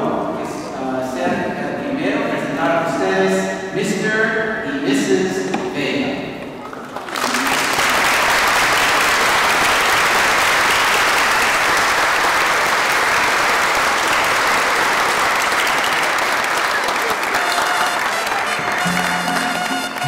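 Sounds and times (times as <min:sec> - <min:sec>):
congregation applauding: 0:06.6 - 0:20.0
music: 0:17.4 - 0:20.0.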